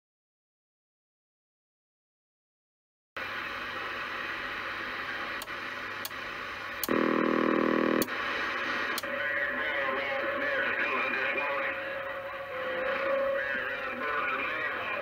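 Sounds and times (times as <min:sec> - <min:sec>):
radio static hiss: 0:03.2 - 0:15.0
buzzing tone: 0:06.8 - 0:08.1.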